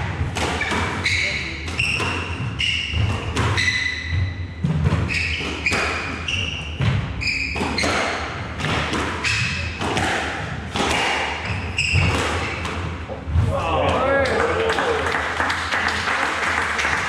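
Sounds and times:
squash ball hitting rackets and walls: 0:00.0 - 0:14.2
shoes squeaking on wooden floor: 0:00.4 - 0:08.4, 0:09.2 - 0:09.8, 0:11.3 - 0:13.2.

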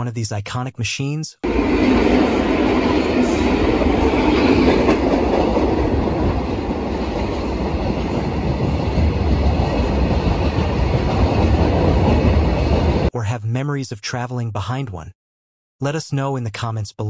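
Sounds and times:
freight train wheels on rails: 0:01.4 - 0:13.1.

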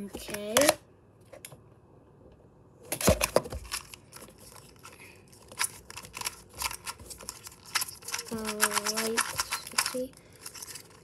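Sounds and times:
plastic puzzle cube clicking: 0:05.6 - 0:10.0.

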